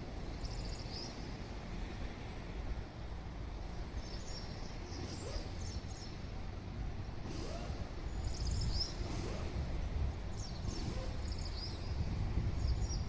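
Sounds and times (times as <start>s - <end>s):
steady low rumble: 0.0s - 13.0s
small birds chirping: 3.9s - 6.5s, 7.6s - 13.0s.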